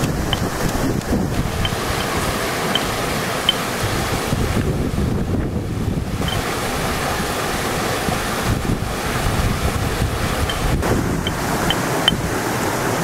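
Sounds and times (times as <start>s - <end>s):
river flowing over stones: 0.0s - 13.0s
wind buffeting microphone: 0.0s - 13.0s.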